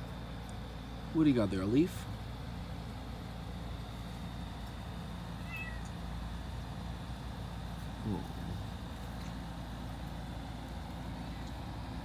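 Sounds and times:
low background hum: 0.0s - 12.0s
kitten mewing: 5.4s - 6.0s.

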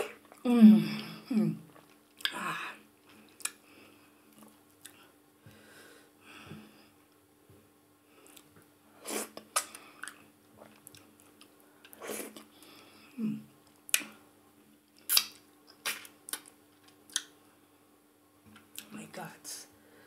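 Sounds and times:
person chewing: 1.7s - 2.4s, 3.0s - 3.6s, 8.2s - 12.6s, 14.9s - 17.3s
short sharp wet smacks: 15.0s - 16.5s.

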